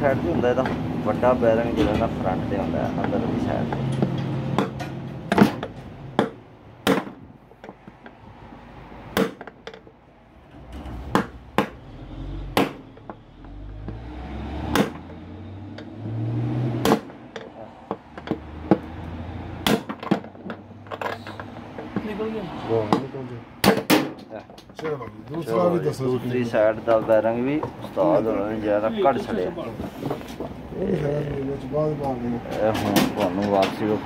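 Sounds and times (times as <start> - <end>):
hammer striking metal punch: 4.6 - 7.2, 9.2 - 9.5, 12.6 - 12.9.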